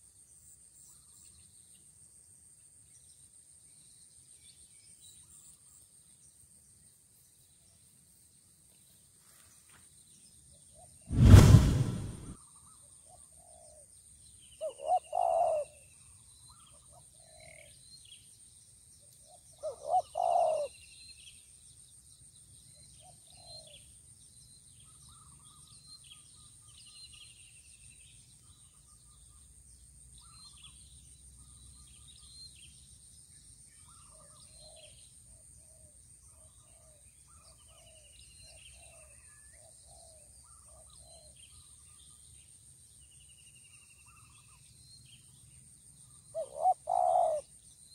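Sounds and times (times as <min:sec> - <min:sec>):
dove cooing: 0:14.7 - 0:15.6, 0:19.7 - 0:20.7, 0:46.4 - 0:47.4.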